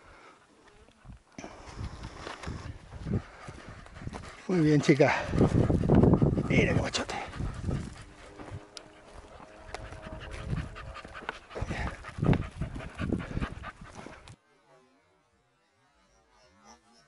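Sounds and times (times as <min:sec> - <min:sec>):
dog panting: 0:02.9 - 0:14.4.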